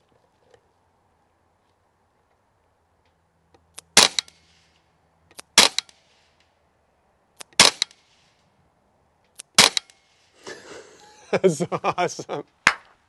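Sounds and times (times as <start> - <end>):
air rifle shots: 3.8 - 6.5, 7.4 - 8.4, 9.4 - 10.4
short clicks: 7.4 - 8.3.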